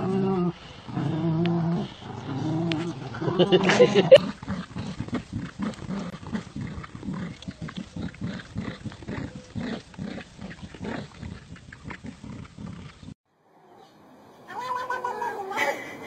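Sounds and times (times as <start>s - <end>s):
dog growling: 0.0s - 13.1s.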